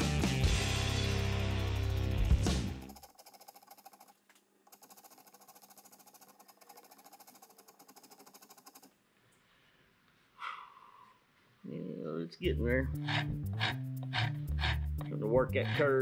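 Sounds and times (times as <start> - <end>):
wood rasp scraping wood: 0.7 - 4.1, 12.7 - 16.0.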